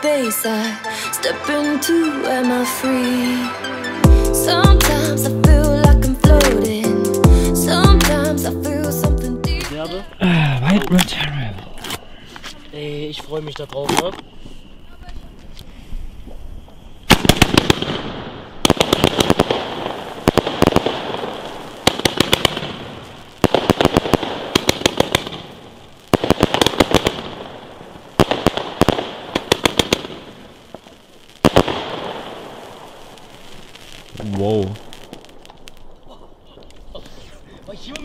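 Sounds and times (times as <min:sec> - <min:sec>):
firework crackle: 0:10.8 - 0:38.0
firework volleys of sharp bangs: 0:16.2 - 0:38.0.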